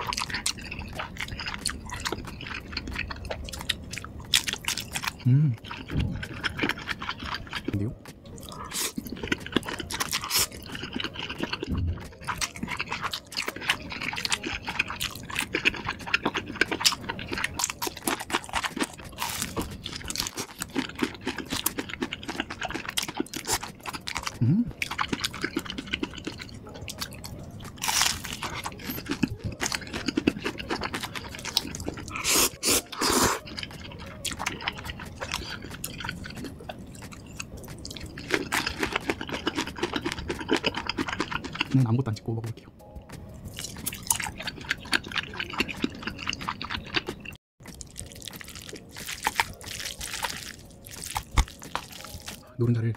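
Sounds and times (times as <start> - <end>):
crunchy bites: 0.0 - 41.8, 43.4 - 52.5
wet chewing: 0.0 - 52.9
mouth noises: 5.2 - 6.2, 24.2 - 24.8, 26.9 - 36.5.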